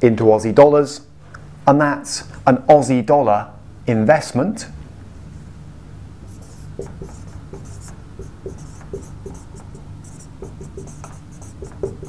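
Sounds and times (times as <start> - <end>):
marker squeaking on whiteboard: 6.3 - 12.0.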